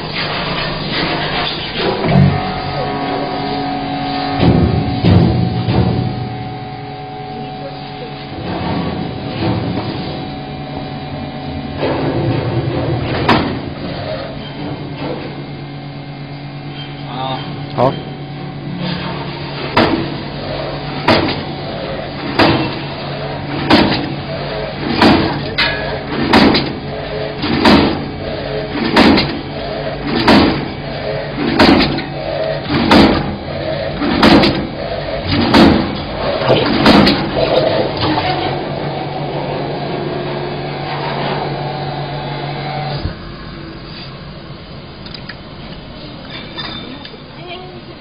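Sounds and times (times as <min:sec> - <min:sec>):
sausage filler humming: 0:00.0 - 0:48.0
clipper machine clacking: 0:19.8 - 0:38.6.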